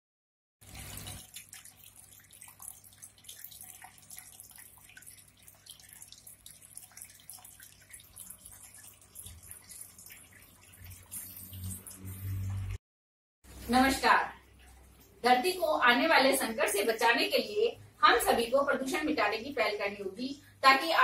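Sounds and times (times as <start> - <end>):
water trickling over pebbles: 0.6 - 12.8.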